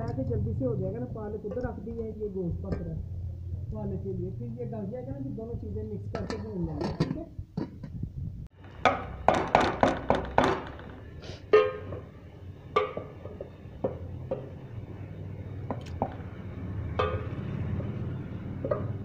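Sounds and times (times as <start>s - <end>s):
metal ladle knocking on pot: 8.7s - 12.1s, 12.7s - 14.6s, 15.7s - 18.0s, 18.6s - 19.0s.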